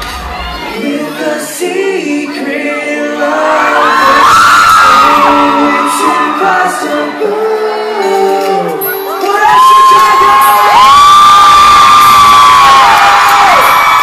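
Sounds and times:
fans screaming and cheering: 0.0s - 14.0s
live pop band: 0.0s - 14.0s.

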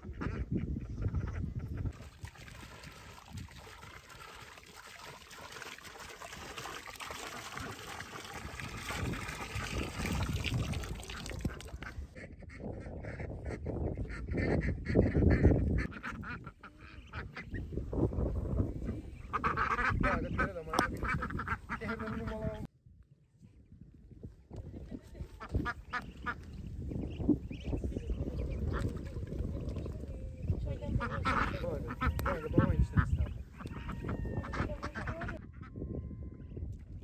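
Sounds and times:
water poured onto ground: 1.9s - 11.9s
ducks calling: 11.2s - 17.7s, 18.8s - 22.7s, 25.4s - 29.6s, 30.8s - 35.7s.

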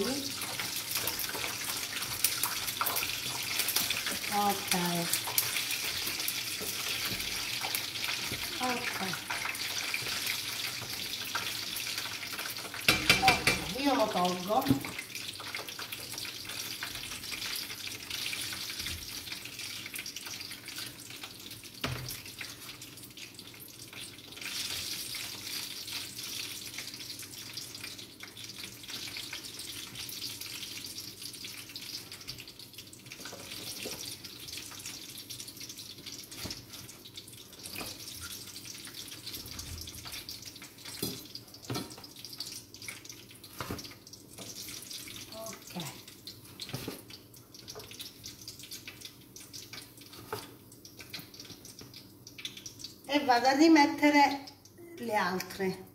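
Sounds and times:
dough sizzling in hot oil: 0.0s - 55.9s
utensil knocking against pan: 12.9s - 13.8s.

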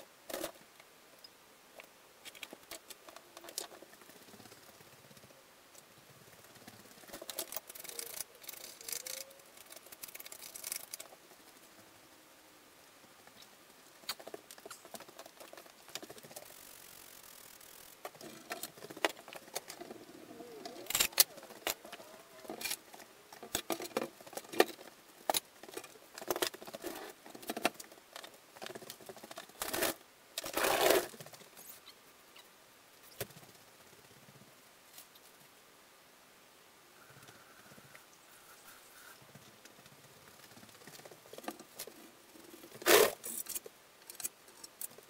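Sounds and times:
objects being handled: 17.9s - 31.9s.

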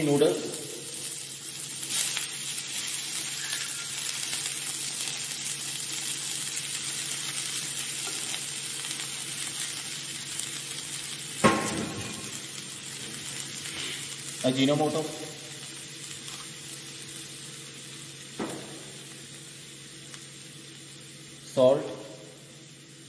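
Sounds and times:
vegetables sizzling in a wok: 0.0s - 23.0s
sharp metallic clank: 11.4s - 12.4s.

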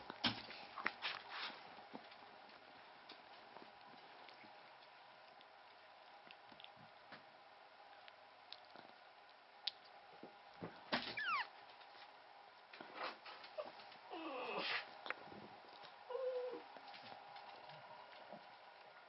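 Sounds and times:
puppy whimpering: 11.1s - 11.5s, 13.5s - 14.8s, 16.1s - 16.7s.

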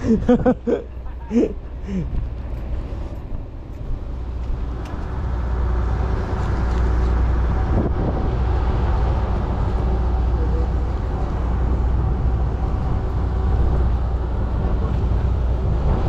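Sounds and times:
low engine drone: 0.0s - 16.0s.

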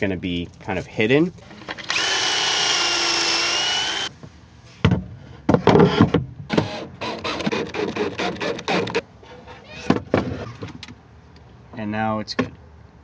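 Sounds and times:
power drill whining: 1.9s - 4.1s.

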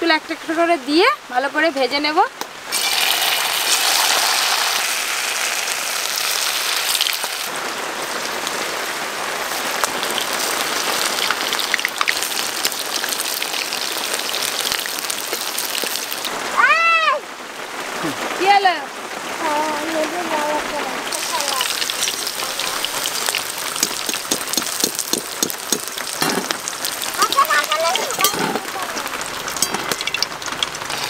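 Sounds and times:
chicken sizzling in hot oil: 2.7s - 16.3s, 21.1s - 31.0s
high cry: 16.5s - 17.3s.

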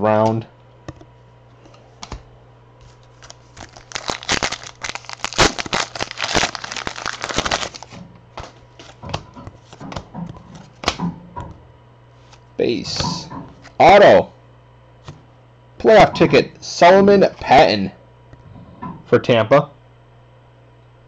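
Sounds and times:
cards rustling: 2.8s - 11.0s
plastic wrapper tearing and crinkling: 2.9s - 9.0s.

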